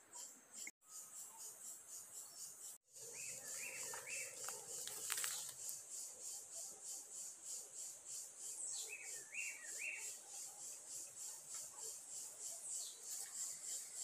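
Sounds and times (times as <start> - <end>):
insects chirping: 0.0 - 14.0
bird calling: 3.0 - 5.7.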